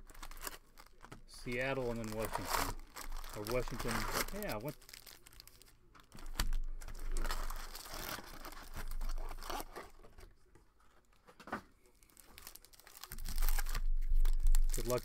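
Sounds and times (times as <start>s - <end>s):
foil wrappers crinkling: 0.0s - 10.1s, 11.8s - 15.0s.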